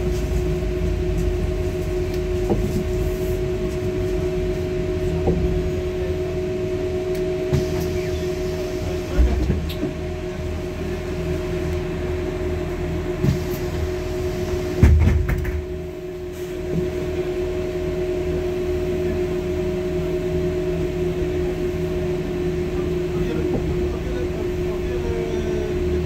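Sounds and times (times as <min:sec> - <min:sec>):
bus interior hum and whine: 0:00.0 - 0:26.0
thump: 0:14.8 - 0:15.6.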